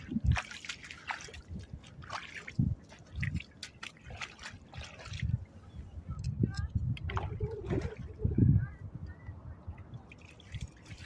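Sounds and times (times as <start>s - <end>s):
boots splashing in water: 0.0s - 5.4s, 10.1s - 11.0s.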